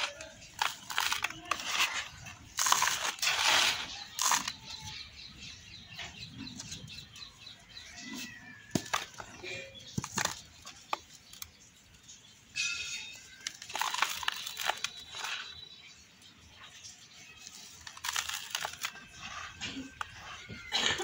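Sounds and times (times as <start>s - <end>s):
dry soil crumbling in hands: 0.0s - 5.0s, 8.7s - 11.7s, 13.2s - 15.7s, 17.3s - 21.0s.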